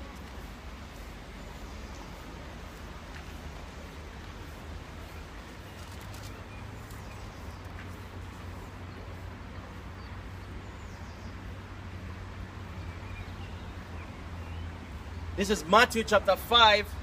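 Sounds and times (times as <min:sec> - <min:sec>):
steady low hum: 0:00.0 - 0:15.4.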